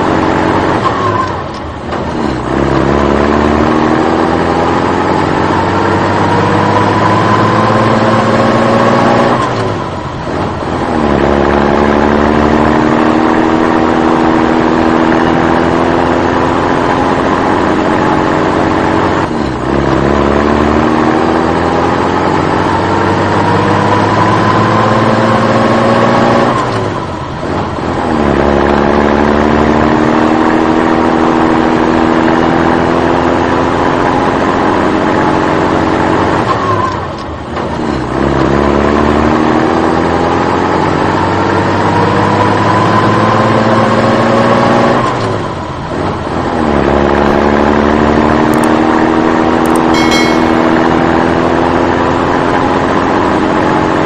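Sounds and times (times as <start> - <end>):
truck engine revving: 0.0 - 32.2.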